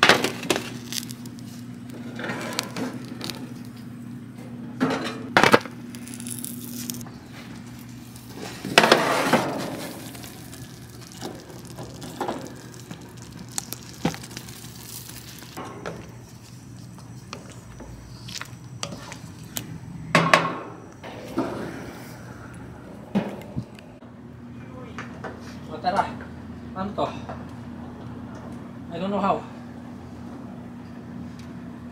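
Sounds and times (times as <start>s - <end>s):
low steady hum: 0.0s - 25.2s.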